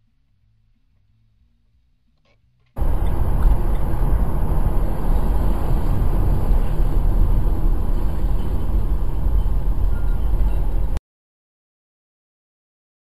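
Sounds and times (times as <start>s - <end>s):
heavy low rumble: 2.8s - 11.0s
road and wind noise inside car: 2.8s - 11.0s.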